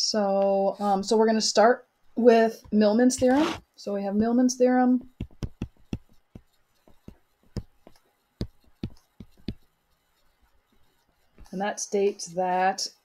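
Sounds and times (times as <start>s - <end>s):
stylus tapping on touchscreen: 4.2s - 9.7s.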